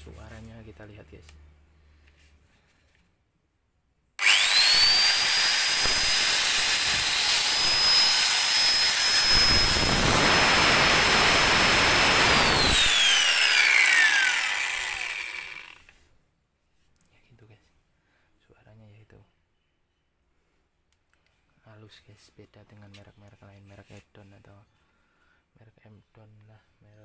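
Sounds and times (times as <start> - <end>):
angle grinder whining: 4.2 - 16.0
grinder winding down: 4.2 - 16.0.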